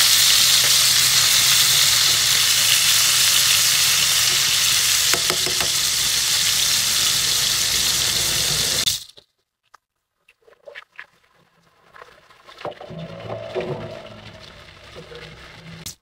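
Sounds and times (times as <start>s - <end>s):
fish sizzling in frying pan: 0.0s - 9.2s.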